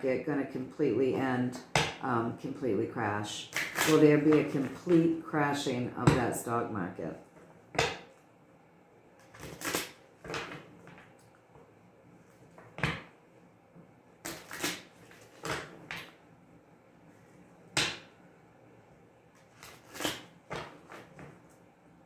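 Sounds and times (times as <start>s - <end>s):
cards being shuffled: 14.3s - 16.1s, 19.4s - 21.3s.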